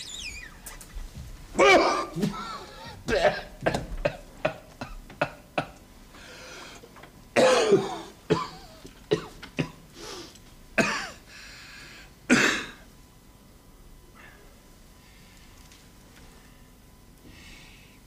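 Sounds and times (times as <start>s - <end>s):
man coughing harshly: 1.6s - 5.8s, 7.4s - 9.8s, 10.8s - 11.2s, 12.3s - 12.8s.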